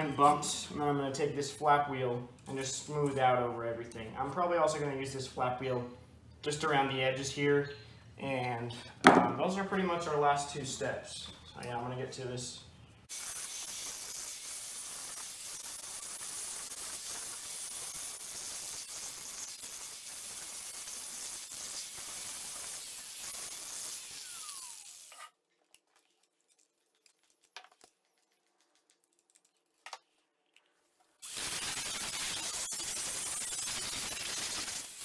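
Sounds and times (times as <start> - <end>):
angle grinder grinding steel: 13.4 - 25.3, 31.2 - 35.0.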